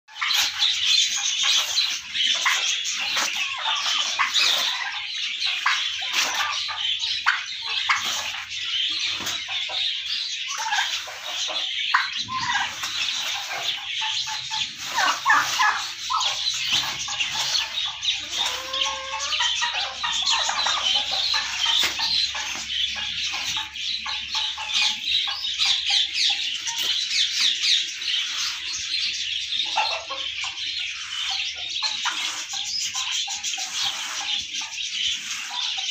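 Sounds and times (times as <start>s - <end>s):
turkeys and chickens chattering: 0.1s - 35.9s
low sliding bird calls: 10.5s - 23.7s.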